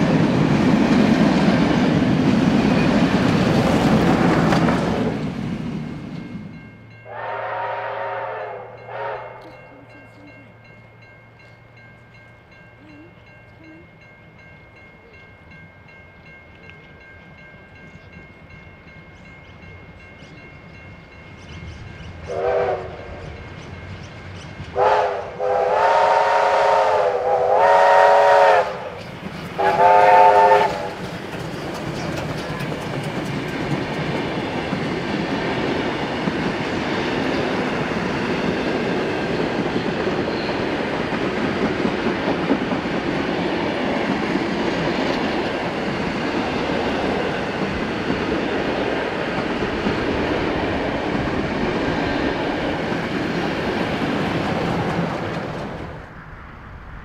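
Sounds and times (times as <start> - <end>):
train carriages rumbling past: 0.0 - 57.0
steam locomotive whistle blasts: 7.0 - 9.5, 22.3 - 23.3, 24.7 - 29.0, 29.6 - 31.0.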